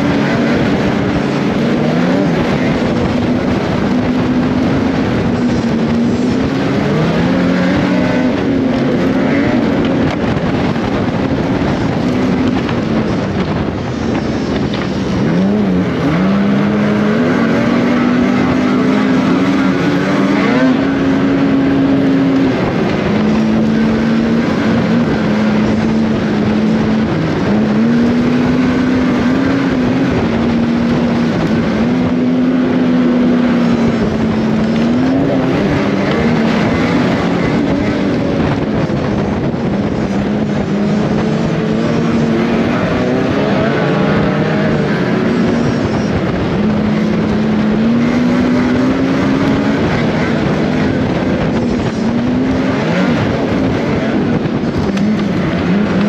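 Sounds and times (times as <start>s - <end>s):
snowmobile engine revving: 0.0s - 56.0s
track and wind noise: 0.0s - 56.0s.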